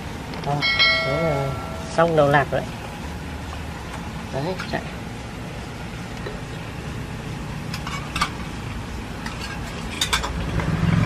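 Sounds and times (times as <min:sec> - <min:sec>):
sharp metallic clinks: 0:00.5 - 0:02.2.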